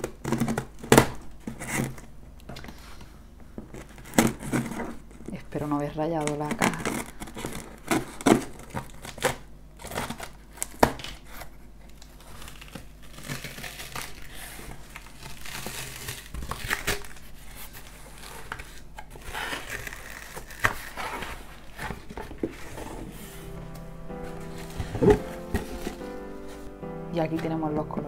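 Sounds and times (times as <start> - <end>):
packing tape tearing: 0.0 - 2.7, 3.7 - 5.3, 6.2 - 26.8
cardboard flaps rustling: 3.6 - 5.3, 6.2 - 26.8.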